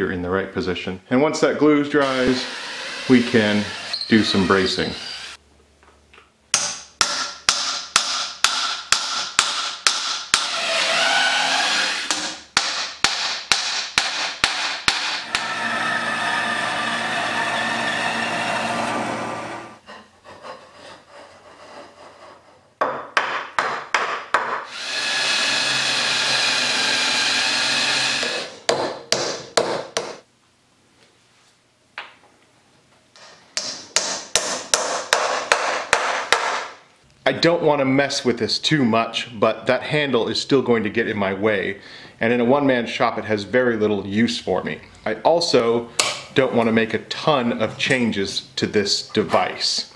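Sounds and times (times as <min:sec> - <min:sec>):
bandsaw cutting wood: 0:02.0 - 0:05.4, 0:10.4 - 0:12.4, 0:14.0 - 0:19.8, 0:24.7 - 0:28.6
hammer striking wooden pegs: 0:06.5 - 0:10.7, 0:12.0 - 0:15.8, 0:22.8 - 0:26.6, 0:27.3 - 0:30.2, 0:33.6 - 0:36.8, 0:46.0 - 0:46.3.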